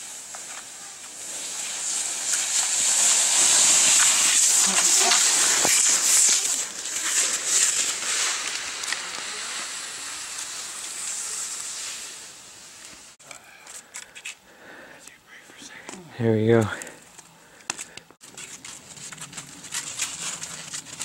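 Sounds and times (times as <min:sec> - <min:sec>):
skis hissing over snow: 0:00.0 - 0:13.2, 0:18.3 - 0:21.0
skis and poles clicking on snow: 0:00.0 - 0:14.4, 0:15.8 - 0:21.0.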